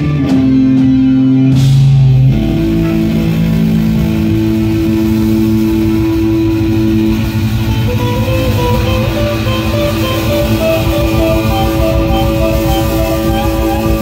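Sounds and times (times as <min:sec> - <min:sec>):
electric guitar chords: 0:00.0 - 0:14.0
organ chords: 0:00.0 - 0:14.0.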